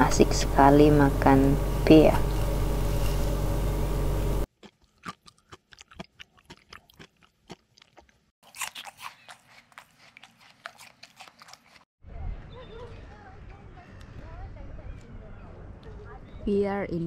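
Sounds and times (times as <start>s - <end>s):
toddler chewing crunchy food: 4.5s - 11.9s.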